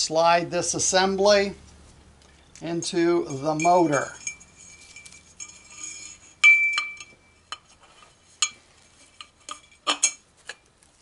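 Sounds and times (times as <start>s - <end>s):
metal clinks and knocks: 3.1s - 10.7s.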